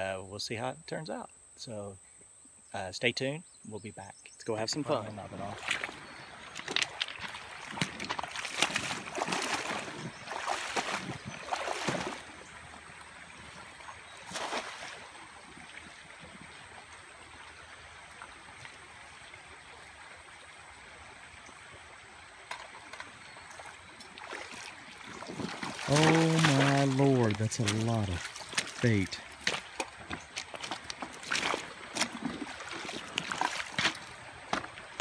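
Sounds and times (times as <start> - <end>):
stream water burbling: 4.5 - 35.0
cast net splashing on water: 7.4 - 12.4, 14.2 - 15.2, 23.6 - 28.9, 30.7 - 34.0.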